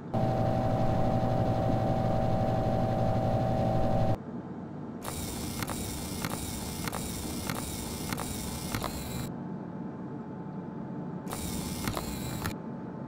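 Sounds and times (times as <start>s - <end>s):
machine low hum: 0.0s - 13.0s
regular clicks: 5.0s - 9.3s, 11.3s - 12.6s.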